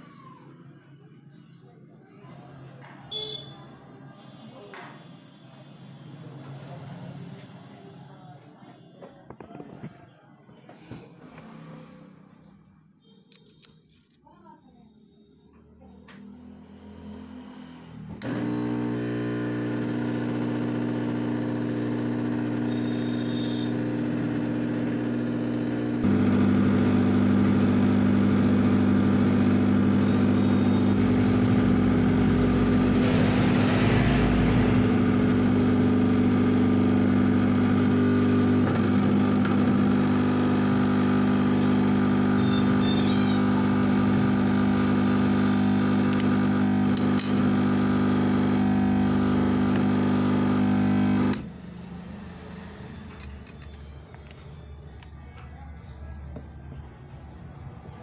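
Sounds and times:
hot-air gun motor hum: 17.6s - 53.5s.

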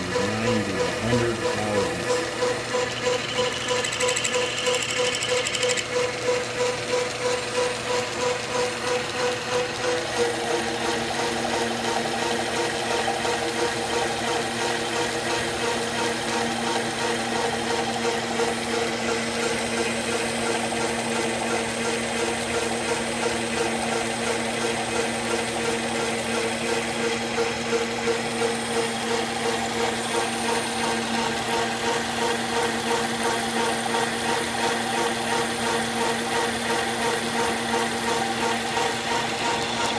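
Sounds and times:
rough mechanical noise: 0.0s - 10.5s
metal lathe whirring: 0.0s - 39.9s.

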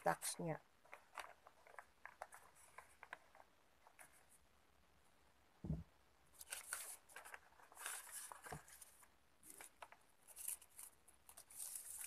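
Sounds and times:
paper rustling: 0.8s - 4.4s, 6.3s - 12.0s
soft knock: 5.6s - 5.9s.

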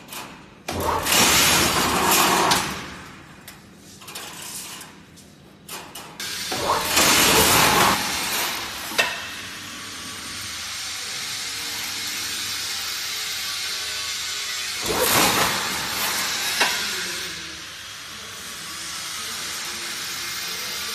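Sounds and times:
weaving machine hissing: 6.2s - 20.9s.

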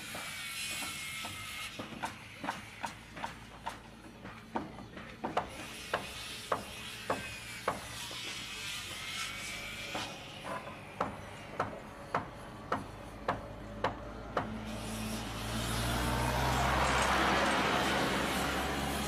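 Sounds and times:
hand hammer striking: 9.9s - 14.6s.

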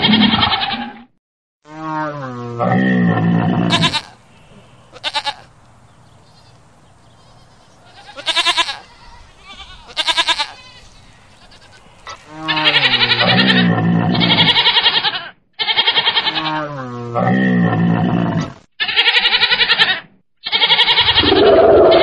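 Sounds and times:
goat bleating: 3.7s - 4.2s, 4.9s - 5.5s, 6.2s - 16.6s, 18.8s - 21.4s.

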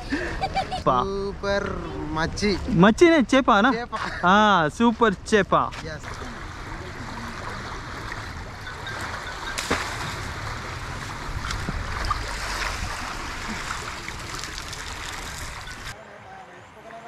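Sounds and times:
fast-flowing water rushing: 6.0s - 16.0s.

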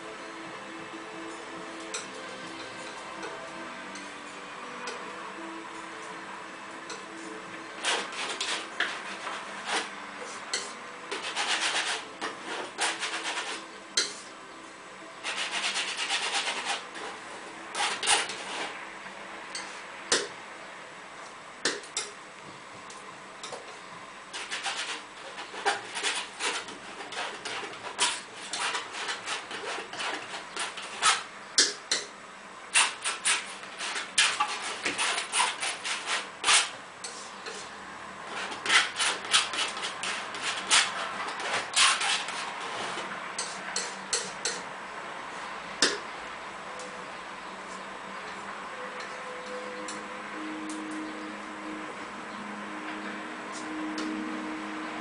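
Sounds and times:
painting tools clicking and scraping: 6.9s - 14.3s, 15.2s - 18.7s, 24.3s - 32.1s, 32.7s - 44.7s
paintbrush scrubbing on canvas: 7.8s - 14.2s, 15.2s - 17.2s, 32.8s - 37.7s.

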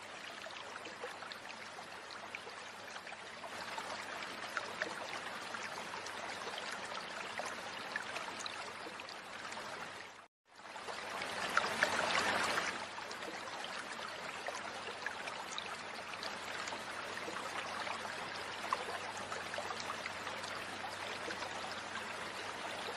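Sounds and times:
shallow stream rushing: 9.1s - 22.9s
water splashing from wading: 10.9s - 13.4s.

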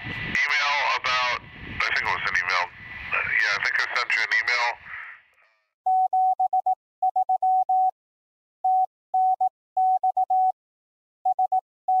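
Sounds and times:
morse code beeps: 5.9s - 7.9s, 8.6s - 10.6s, 11.3s - 12.0s.

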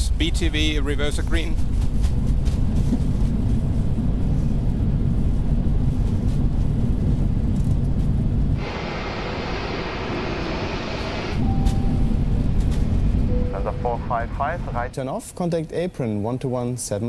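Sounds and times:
deep rumble and rattle in cockpit: 0.0s - 16.3s
jet engine hissing: 8.6s - 15.1s.

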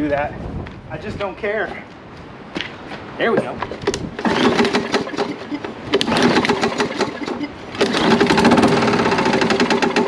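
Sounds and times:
lawn mower engine clattering: 3.8s - 10.0s.

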